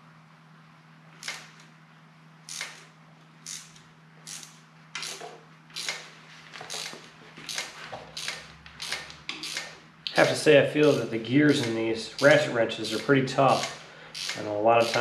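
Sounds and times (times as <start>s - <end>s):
ratchet wrench clicking: 2.5s - 2.8s, 3.4s - 6.1s, 6.7s - 15.0s.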